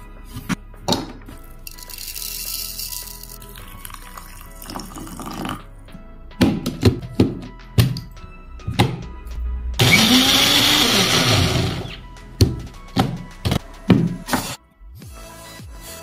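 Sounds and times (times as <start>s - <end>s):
blender grinding: 9.8s - 12.0s.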